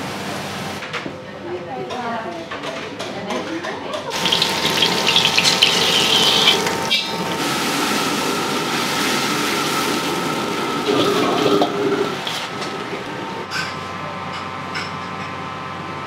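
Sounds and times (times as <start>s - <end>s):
water running from a tap: 4.1s - 12.8s.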